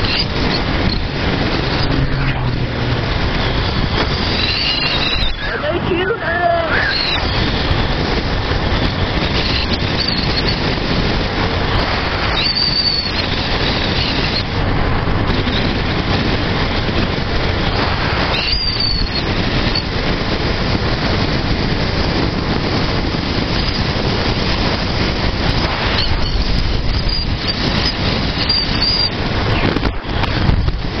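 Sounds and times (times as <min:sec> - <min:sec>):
high squeals: 0:00.0 - 0:07.9, 0:09.2 - 0:10.7, 0:12.2 - 0:14.5, 0:17.7 - 0:19.9, 0:25.5 - 0:29.2
motorcycle engine running: 0:00.0 - 0:31.0
wind noise on microphone: 0:00.0 - 0:31.0.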